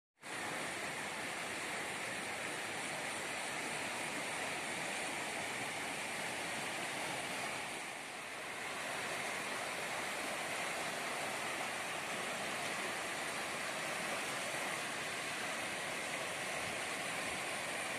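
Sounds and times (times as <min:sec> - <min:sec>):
river rushing: 0:00.2 - 0:17.9.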